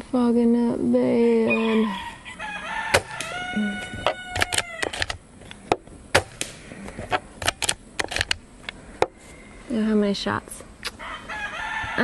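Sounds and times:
quiet air rifle shots: 2.9 - 3.4, 4.1 - 8.4
air rifle bolt clicks: 4.3 - 5.2, 6.2 - 6.6, 7.4 - 8.4.

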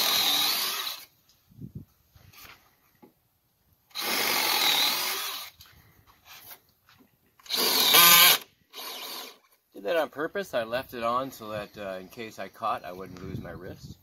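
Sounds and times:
cordless drill boring through wood: 0.0 - 1.1, 3.9 - 5.6, 7.4 - 9.5.

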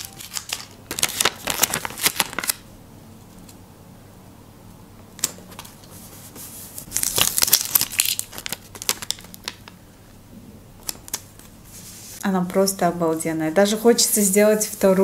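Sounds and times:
paper crinkling and rustling: 0.0 - 2.6, 5.2 - 9.8
sharp paper clicks: 0.0 - 2.6.

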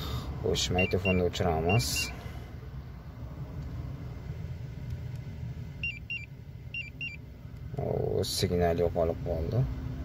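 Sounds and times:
car alarm pager beeps: 0.7 - 2.2, 5.8 - 7.2.

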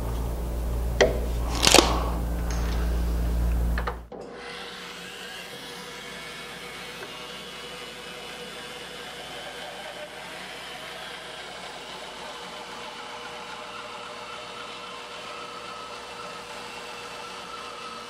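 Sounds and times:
loud low hum: 0.0 - 4.1
bandsaw cutting wood: 4.2 - 18.0.

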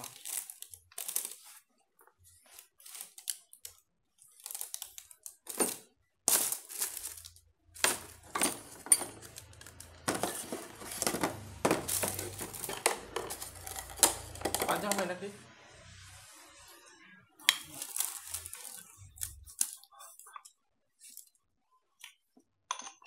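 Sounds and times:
plastic bag crinkling: 0.0 - 1.6, 2.4 - 15.2, 17.6 - 20.3.

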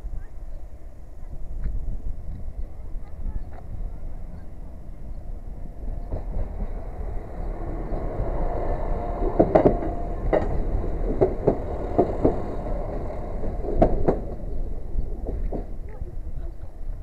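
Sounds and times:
train rumbling past: 0.0 - 17.0
train wheels clacking over rail joints: 5.7 - 16.7.

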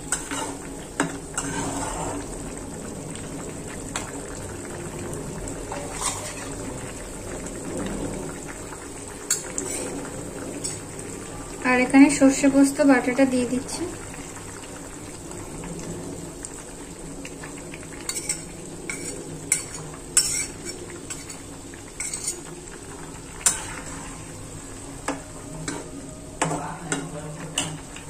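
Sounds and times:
pan simmering: 0.0 - 28.0
spatula scraping and tapping pan: 0.1 - 2.2, 5.8 - 6.5, 9.3 - 9.9, 18.1 - 21.4, 22.0 - 22.5, 23.4 - 24.2.

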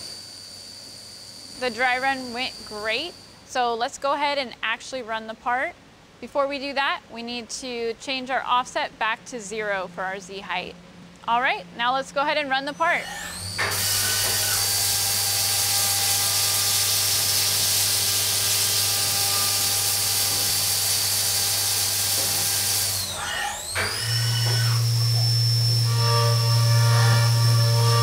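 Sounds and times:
high spindle whine: 0.0 - 3.6, 9.6 - 28.0
steady tones: 0.0 - 3.8, 8.2 - 13.6.

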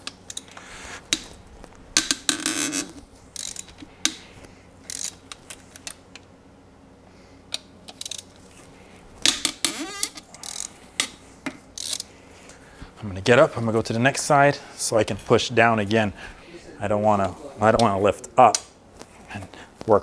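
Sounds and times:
ratchet wrench clicking: 3.4 - 4.2, 4.8 - 6.0, 7.9 - 8.3, 9.9 - 10.7, 11.8 - 12.1.

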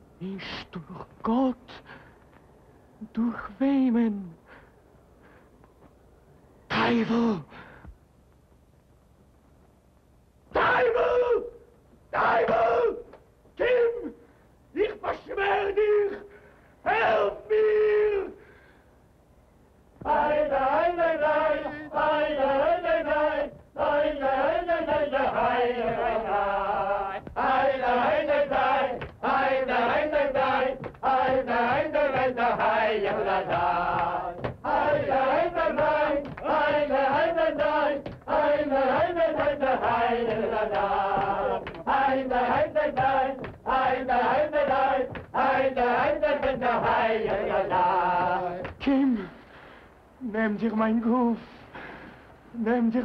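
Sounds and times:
men chanting together: 12.1 - 14.2, 20.0 - 48.8.

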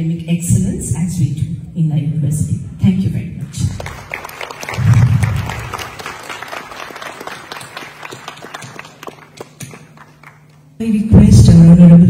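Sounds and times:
audience applauding: 3.7 - 10.7.

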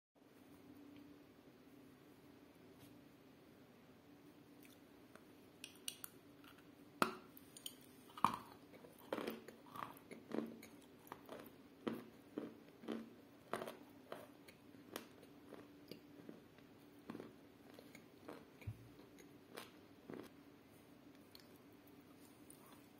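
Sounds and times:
crunchy chewing: 7.5 - 20.4.

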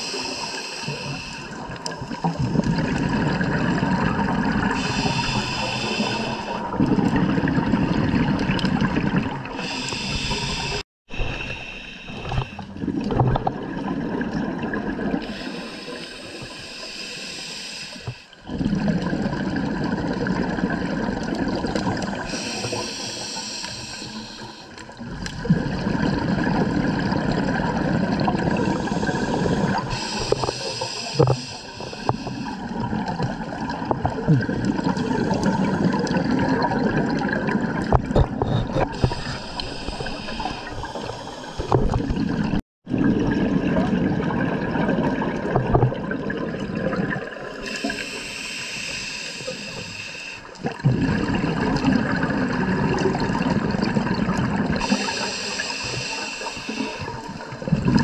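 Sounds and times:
hissing inhalations: 0.0 - 2.4, 4.8 - 6.7, 9.6 - 12.7, 15.2 - 18.4, 22.2 - 24.8, 28.6 - 32.7, 38.8 - 42.0, 47.6 - 50.6, 54.8 - 57.5
gurgling exhaust bubbles: 50.6 - 55.0, 57.4 - 58.0.

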